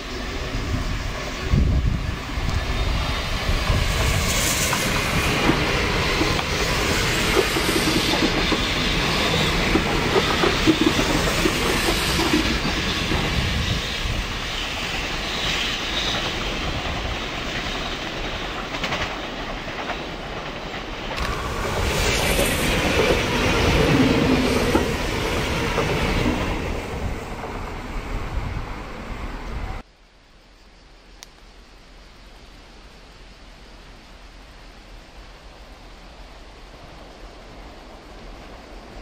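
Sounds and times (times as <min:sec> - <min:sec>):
train passing at speed: 0:00.0 - 0:29.9, 0:33.6 - 0:39.0
wheels clattering over rail joints: 0:04.7 - 0:13.8.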